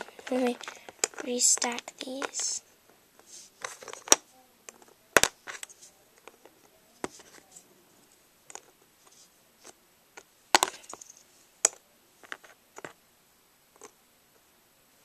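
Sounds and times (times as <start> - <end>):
plastic bricks clicking together: 0.0 - 2.6, 3.6 - 6.4.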